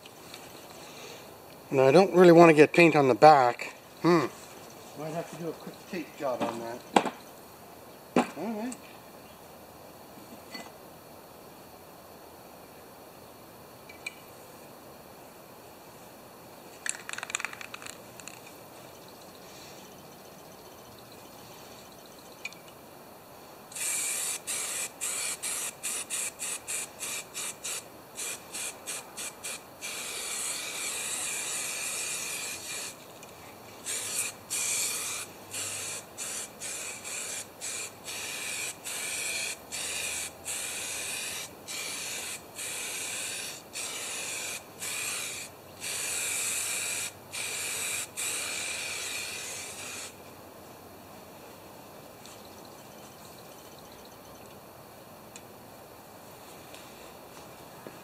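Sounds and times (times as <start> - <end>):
spray paint can spraying: 23.7 - 33.0, 33.8 - 50.2.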